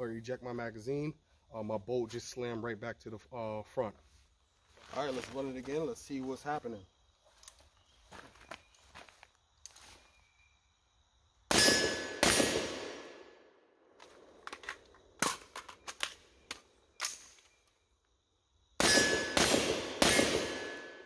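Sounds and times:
rifle shots: 11.5 - 13.3, 18.8 - 21.0.

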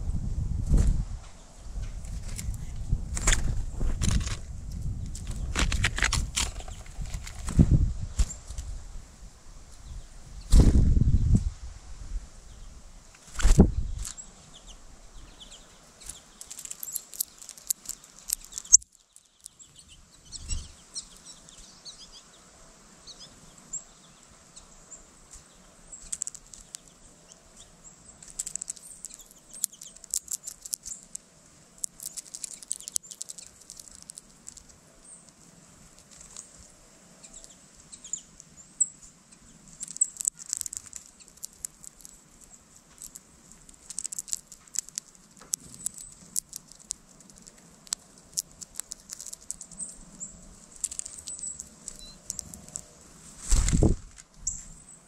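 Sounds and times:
bird cracking seeds: 1.8 - 8.7, 15.4 - 19.8, 25.3 - 38.5, 39.6 - 54.6.

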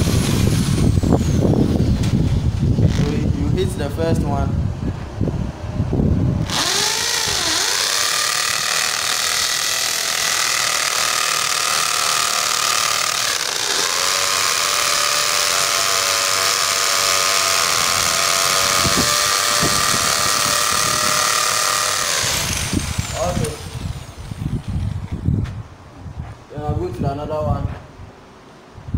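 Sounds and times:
electric drill boring into concrete: 0.0 - 3.2, 6.4 - 25.1.

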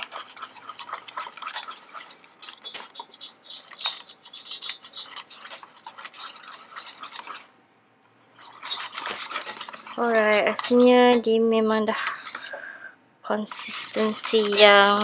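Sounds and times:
whisk clicking against metal bowl: 0.0 - 7.4, 8.4 - 11.3, 11.9 - 12.6, 13.5 - 15.0.

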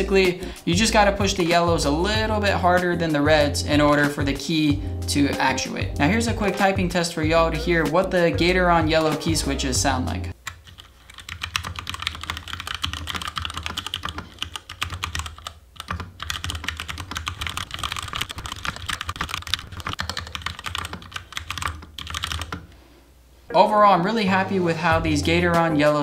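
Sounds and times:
mechanical keyboard typing: 10.4 - 22.7.

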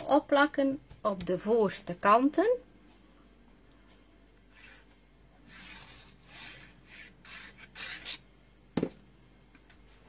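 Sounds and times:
glue stick rubbing on card: 5.5 - 8.2.

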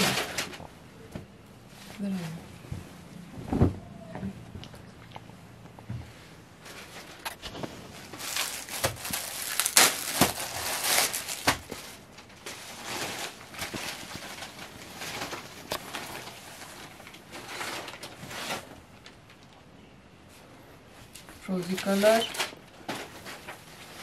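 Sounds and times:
cloth rustling and crackling: 0.0 - 19.6.

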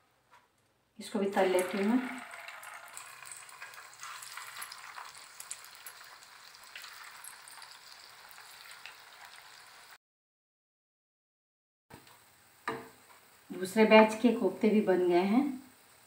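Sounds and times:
food deep-frying in oil: 1.0 - 10.0.

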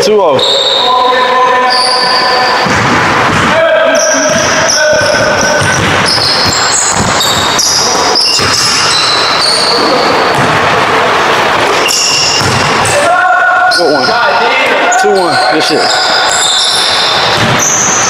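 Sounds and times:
sneakers squeaking on court: 4.0 - 10.5, 11.7 - 12.7, 15.4 - 18.0
basketball bouncing on wooden floor: 4.3 - 9.2, 12.0 - 12.8.

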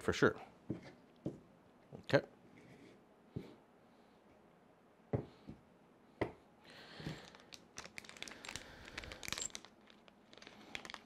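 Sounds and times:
plastic crinkle: 7.2 - 11.0
small parts clicking: 7.2 - 11.0.

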